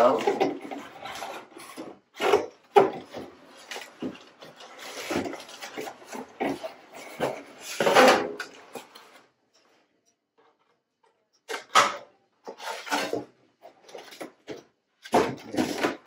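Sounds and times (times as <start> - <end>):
cardboard scraping and rustling: 0.0 - 9.2.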